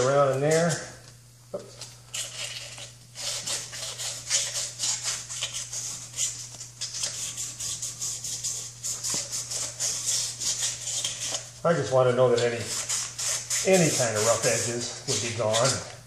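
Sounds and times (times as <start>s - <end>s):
sandpaper rasping on metal: 2.2s - 11.5s, 12.4s - 15.9s.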